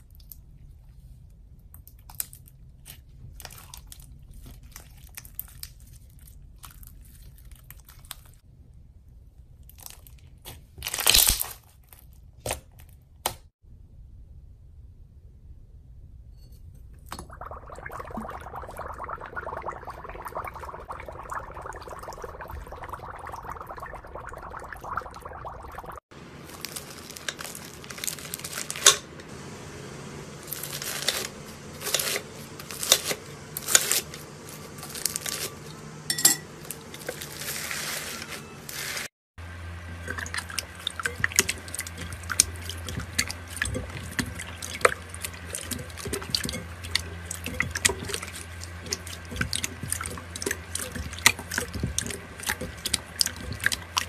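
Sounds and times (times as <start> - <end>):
steady low hum: 13.7 - 37.6
water washing in a bowl: 17.0 - 28.9, 30.3 - 54.0.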